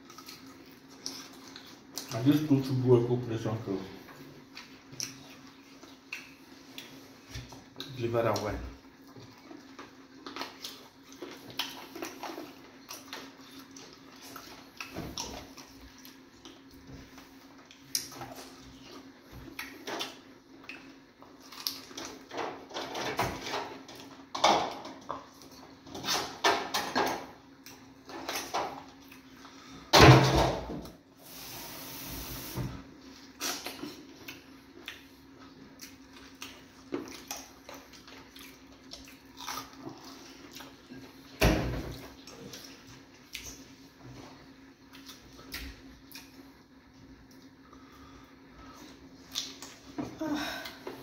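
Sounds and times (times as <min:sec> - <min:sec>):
chewing and mouth noises: 0:00.0 - 0:02.7, 0:04.0 - 0:22.3, 0:33.1 - 0:48.0, 0:48.7 - 0:49.9.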